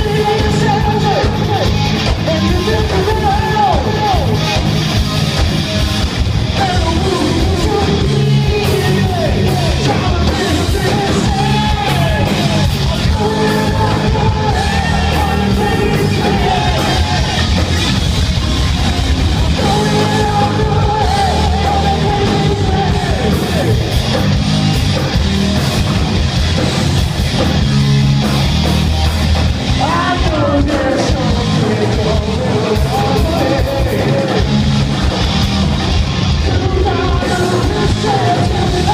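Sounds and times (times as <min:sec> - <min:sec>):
man singing and yelling: 0:00.0 - 0:04.6, 0:06.4 - 0:17.9, 0:18.9 - 0:24.3, 0:29.6 - 0:34.9, 0:36.2 - 0:38.9
rock band playing: 0:00.0 - 0:38.9.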